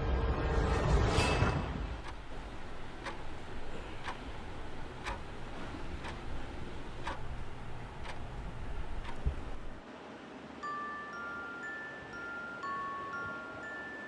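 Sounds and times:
low steady rumble: 0:01.9 - 0:09.8
clock ticking: 0:02.0 - 0:09.8.

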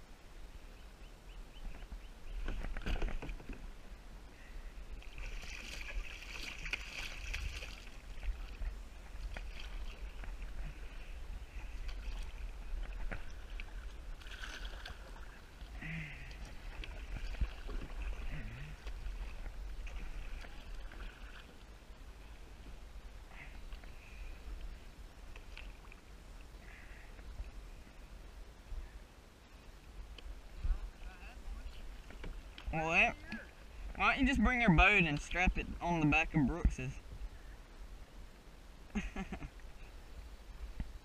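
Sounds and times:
paddle splashing in water: 0:04.9 - 0:22.7, 0:23.3 - 0:27.2.

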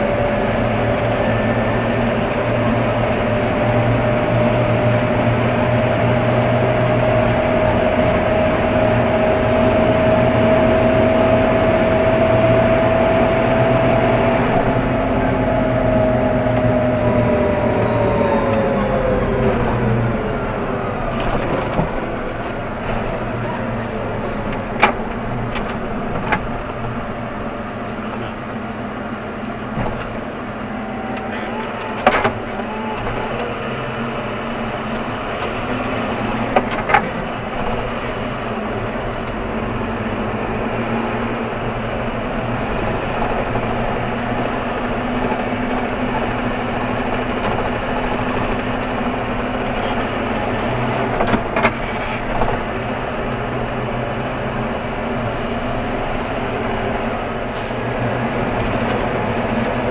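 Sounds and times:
tractor diesel engine running: 0:00.0 - 0:59.9
turn indicator beeping: 0:16.6 - 0:35.2.

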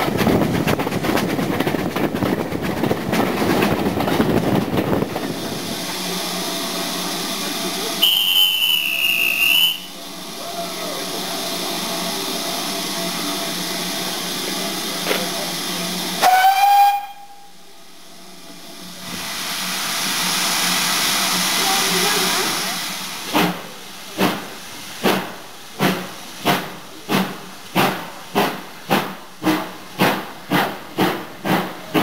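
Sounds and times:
steady hiss of train running: 0:00.0 - 0:32.0
train rushing under bridge: 0:00.0 - 0:32.0
high squeal or whistle: 0:08.0 - 0:10.0.

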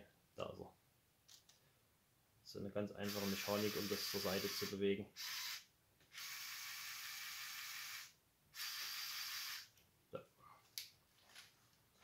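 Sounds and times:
toy motor gears whirring: 0:03.0 - 0:09.7.

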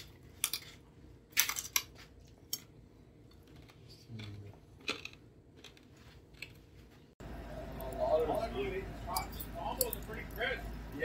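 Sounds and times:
chewing: 0:03.3 - 0:06.8.

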